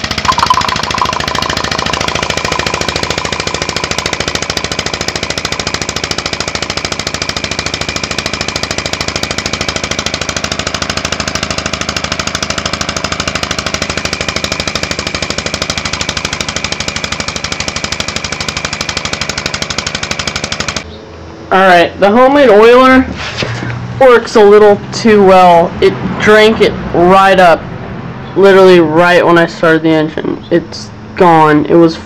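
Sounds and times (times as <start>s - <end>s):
compressed-air engine puffing: 23.1s - 24.0s.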